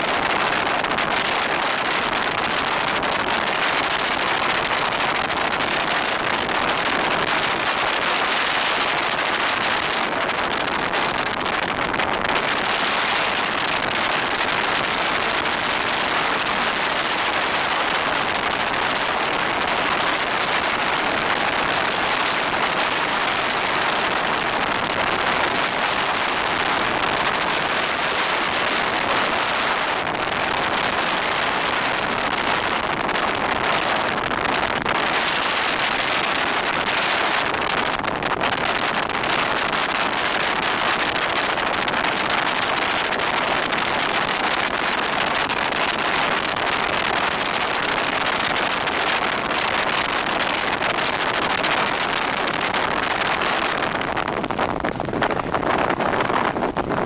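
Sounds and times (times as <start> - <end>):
helicopter cabin noise: 0.0 - 57.0.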